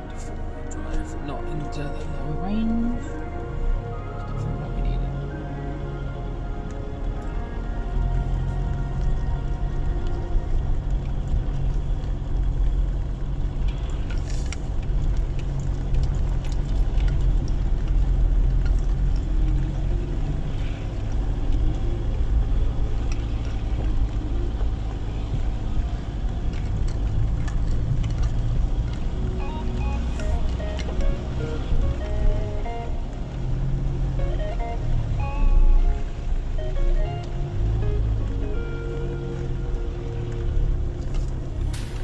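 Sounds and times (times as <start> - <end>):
pickup engine and tyre rumble: 0.0 - 42.0.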